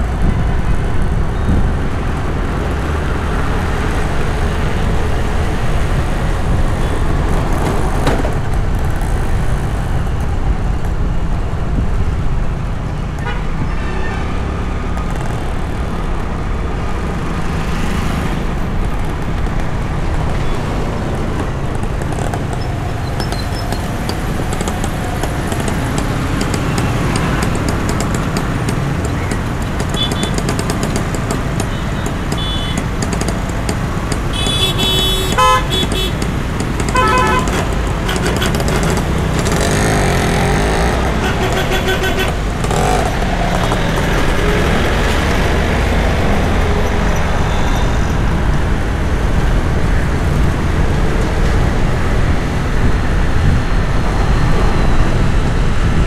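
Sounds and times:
street traffic noise: 0.0 - 56.0
vehicle horns honking: 13.2 - 14.3, 29.8 - 30.4, 31.6 - 32.9, 34.3 - 39.0, 39.6 - 43.0.

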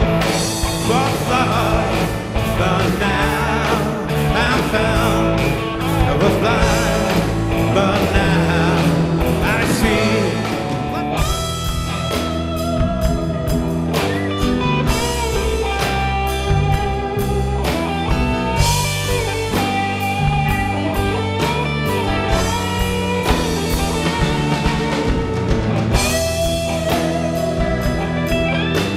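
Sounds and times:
person singing: 0.0 - 12.4
rock music with electric guitar: 0.0 - 28.9.

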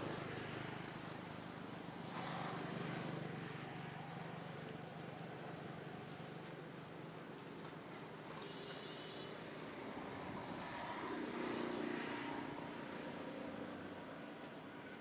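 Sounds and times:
background hiss: 0.0 - 15.0
faint high-pitched whine: 0.0 - 15.0.

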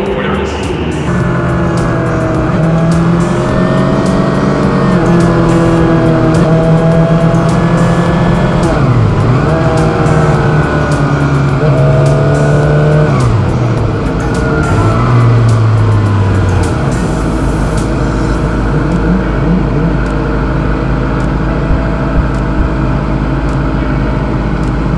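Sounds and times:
motorcycle engine running: 0.0 - 24.9.

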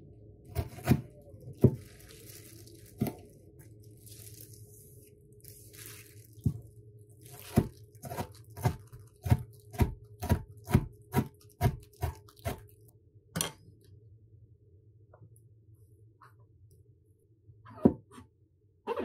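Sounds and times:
knife chopping on cutting board: 7.5 - 12.6.

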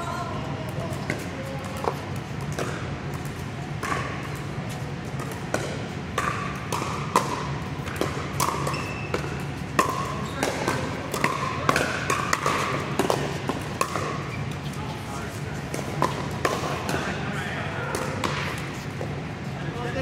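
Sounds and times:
ball bouncing on court: 0.6 - 14.6, 15.6 - 17.2, 17.8 - 19.2
paddles hitting plastic ball: 0.6 - 14.6, 15.7 - 17.2.

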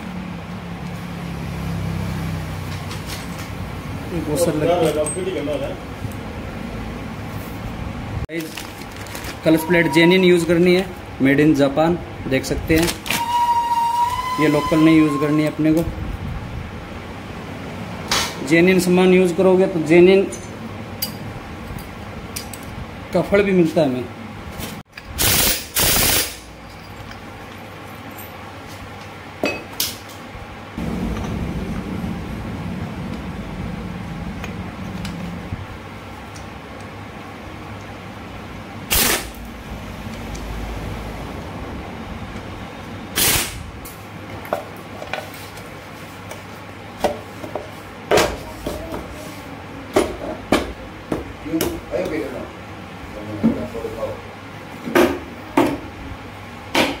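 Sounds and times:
pneumatic impact wrench bursts: 25.2 - 26.5, 38.9 - 39.4, 43.2 - 43.6.

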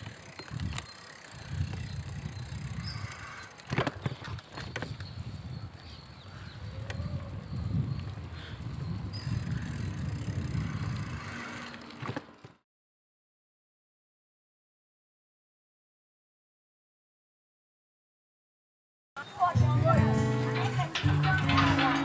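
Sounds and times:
sharp clicks or rattles: 0.0 - 5.1, 19.8 - 22.0
wind buffeting microphone: 0.0 - 11.8
bicycle rolling on road: 0.0 - 12.6, 19.2 - 22.0.

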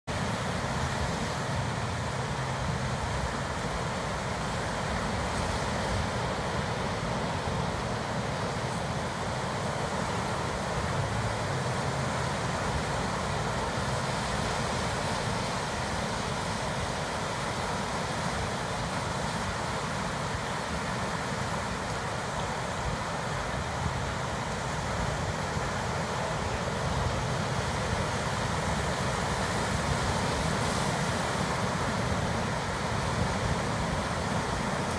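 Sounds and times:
ocean surf on rocky shore: 0.1 - 34.9.

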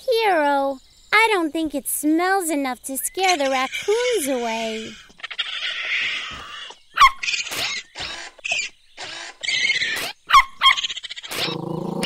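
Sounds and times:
cartoon raccoons hissing and chittering: 3.0 - 12.0.

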